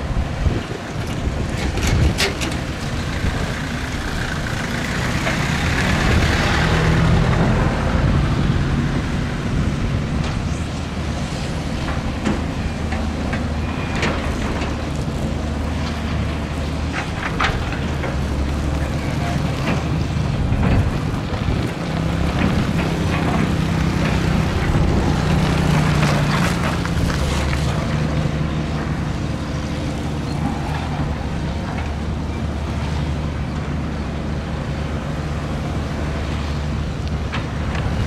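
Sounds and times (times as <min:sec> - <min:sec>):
heavy machinery diesel engine: 0:00.0 - 0:38.0.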